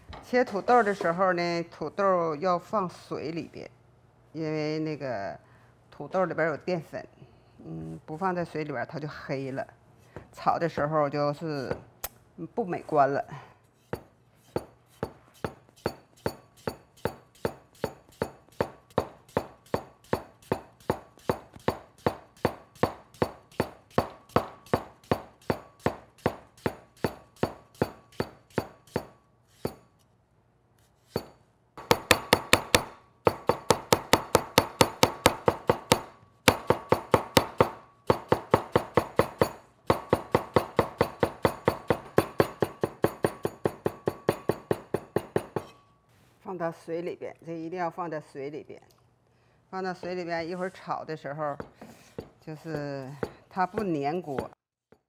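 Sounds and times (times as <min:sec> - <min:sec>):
cleaver chopping on wooden board: 0:14.5 - 0:29.8, 0:31.2 - 0:45.7, 0:53.2 - 0:54.5.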